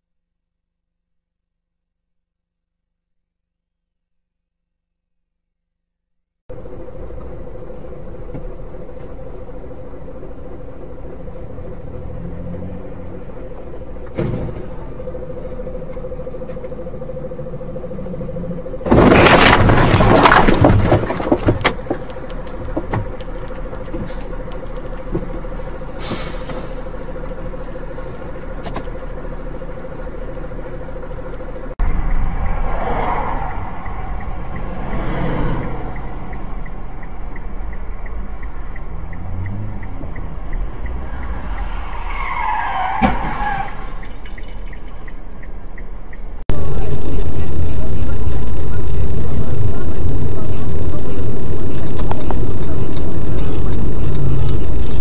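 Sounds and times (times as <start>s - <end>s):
another vehicle: 6.5s - 55.0s
road and engine noise: 6.5s - 55.0s
loud car crash: 18.7s - 24.3s, 41.3s - 45.0s.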